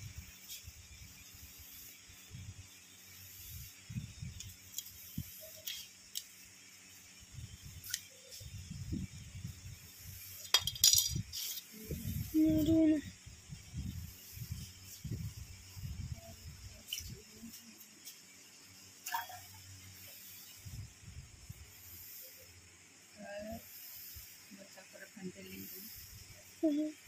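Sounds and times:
metallic clinks of compass and ruler: 10.3 - 11.8.

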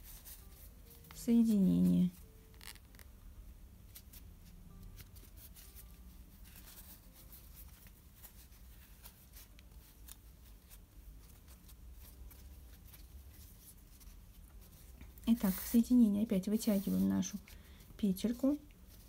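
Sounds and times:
yarn rustling: 0.0 - 3.2, 3.8 - 19.0.

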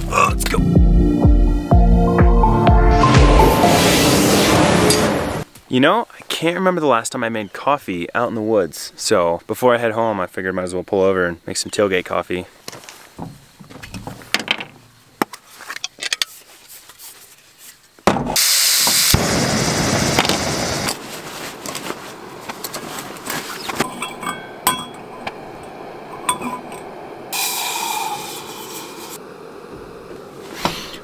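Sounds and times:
gas stove burner hissing: 18.4 - 19.8, 27.2 - 31.0
water pouring into steel mug: 23.8 - 28.8.

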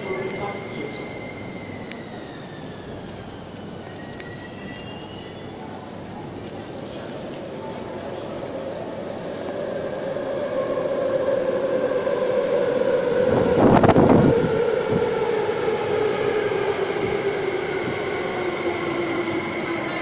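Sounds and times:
train motor whine: 0.0 - 7.5, 8.3 - 20.0
loud rush of noise: 5.8 - 20.0.

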